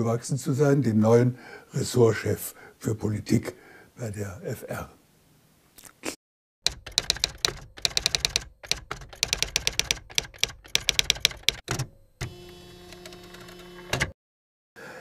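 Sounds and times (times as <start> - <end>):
typewriter keys clacking: 6.7 - 11.8.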